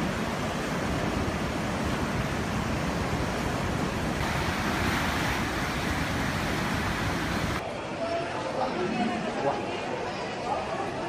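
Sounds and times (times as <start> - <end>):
moving floodwater: 0.0 - 7.6
wind rumbling on microphone: 0.0 - 7.6
wind: 0.0 - 11.0.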